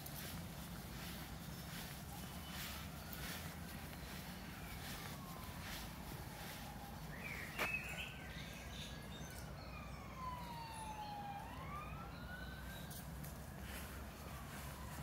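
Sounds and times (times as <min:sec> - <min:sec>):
steady low rumble: 0:00.0 - 0:07.5
distant siren wailing: 0:00.0 - 0:15.0.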